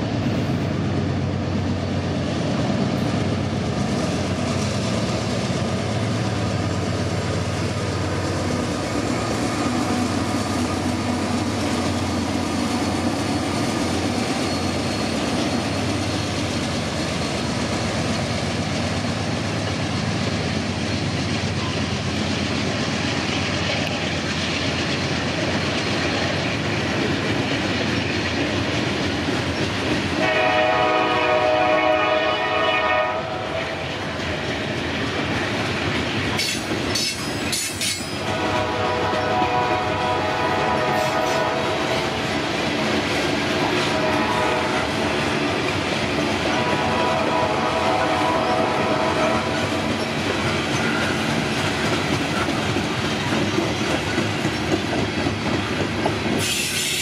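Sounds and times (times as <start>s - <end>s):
diesel locomotive drone: 0.0s - 57.0s
train wheels on rails: 0.0s - 57.0s
locomotive air horn: 30.2s - 33.8s, 38.2s - 41.9s, 43.8s - 45.0s, 46.5s - 49.7s.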